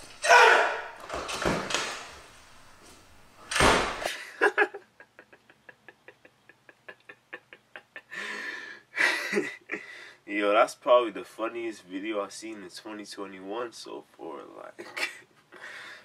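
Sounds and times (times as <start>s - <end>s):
door slamming shut: 0.0s - 2.2s, 3.4s - 4.1s.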